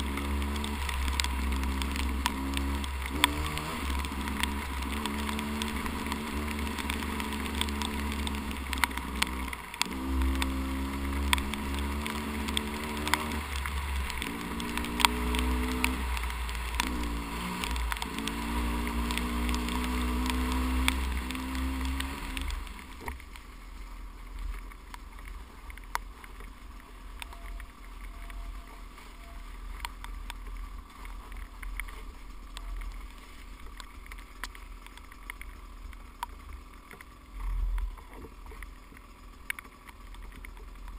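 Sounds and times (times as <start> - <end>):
dirt bike engine revving: 0.0 - 23.1
sharp clicks: 0.0 - 23.4.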